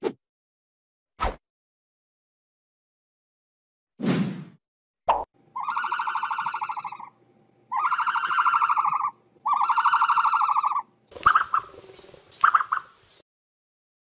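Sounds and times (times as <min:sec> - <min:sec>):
buzzy pulsing call: 0:05.5 - 0:13.0.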